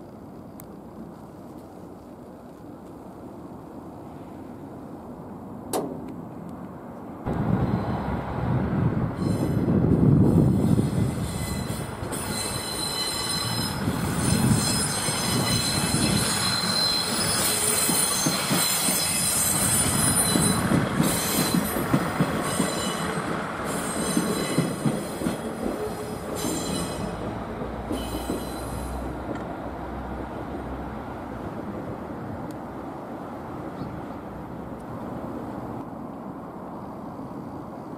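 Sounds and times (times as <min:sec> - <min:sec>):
train wheels squealing: 0:09.1 - 0:09.8, 0:10.4 - 0:29.1.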